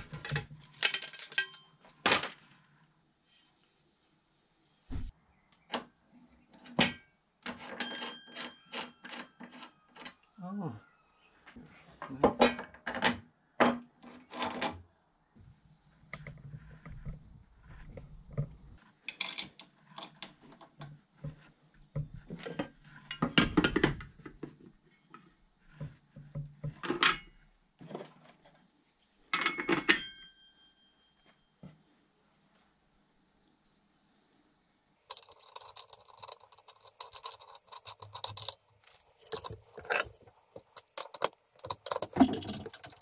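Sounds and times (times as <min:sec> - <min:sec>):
metal parts clinking on wood: 0:00.0 - 0:02.4, 0:06.6 - 0:10.2, 0:35.1 - 0:43.0
short metallic ring: 0:29.4 - 0:31.5.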